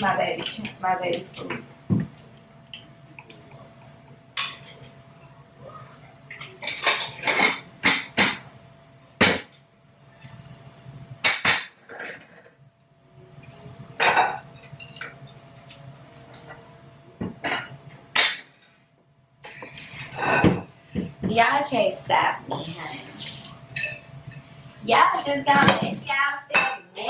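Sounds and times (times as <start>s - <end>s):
plates clattering: 6.3s - 8.4s, 14.0s - 15.4s, 17.2s - 18.7s, 19.5s - 21.1s, 25.1s - 27.0s.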